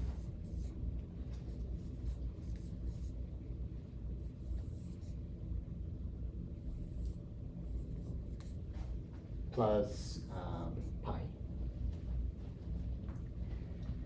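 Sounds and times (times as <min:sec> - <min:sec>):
marker scratching on whiteboard: 0:00.0 - 0:03.4, 0:04.2 - 0:05.2, 0:06.6 - 0:09.0
low room rumble: 0:00.0 - 0:14.0.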